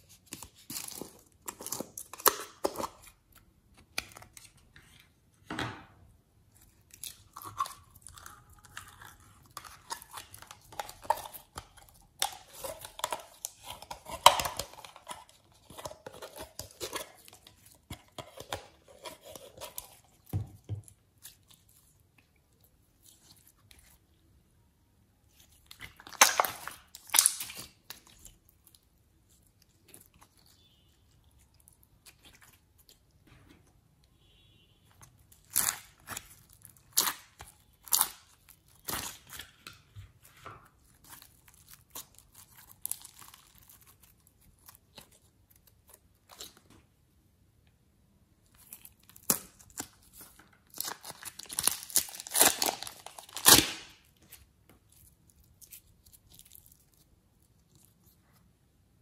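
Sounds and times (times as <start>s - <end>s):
slime squelching: 6.1s - 47.0s.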